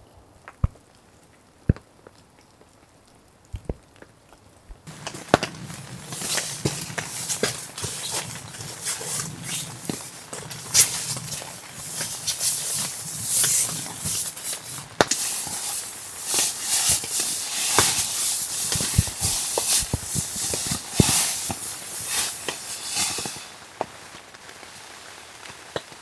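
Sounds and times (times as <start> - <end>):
tent fabric rustling: 4.9 - 24.8.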